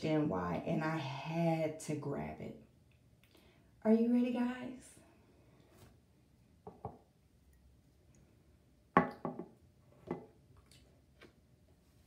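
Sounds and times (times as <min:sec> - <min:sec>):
bottle knocking on tabletop: 0:09.0 - 0:10.3.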